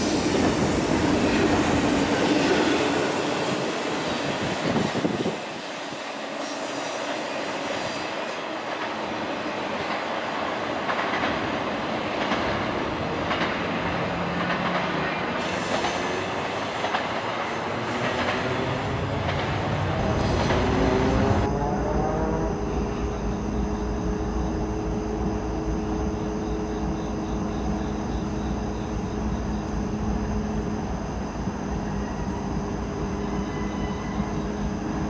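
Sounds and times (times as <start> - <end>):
train wheels squealing and clattering: 14.3 - 21.4, 32.0 - 35.0.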